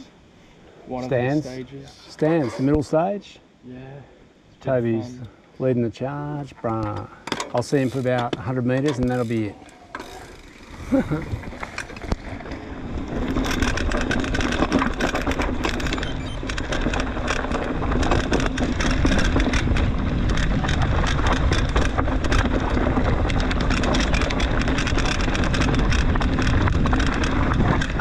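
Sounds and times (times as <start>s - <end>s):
bike rattling and clicking: 6.7s - 28.0s
bike tyre noise on dirt: 7.6s - 28.0s.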